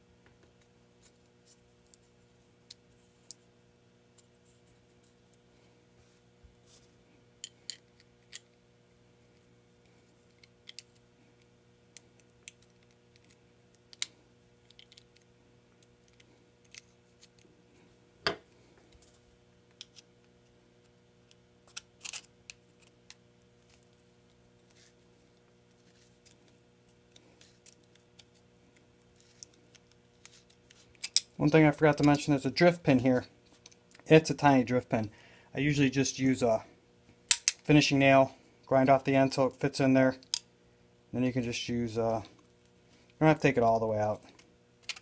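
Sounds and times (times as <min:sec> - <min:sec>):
faint steady hum: 0:00.0 - 0:45.0.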